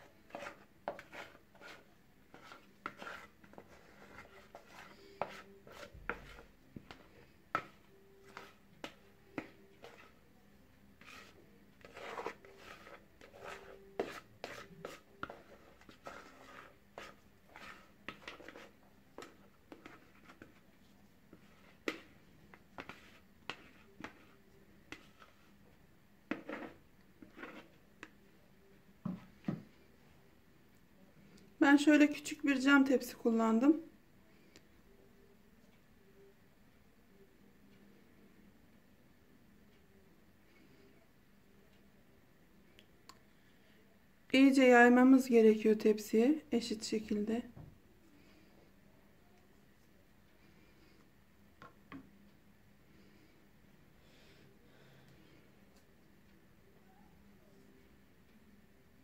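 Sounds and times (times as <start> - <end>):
spatula scraping plastic bowl: 0.0 - 10.2, 11.0 - 20.7, 21.3 - 25.5, 26.3 - 28.1.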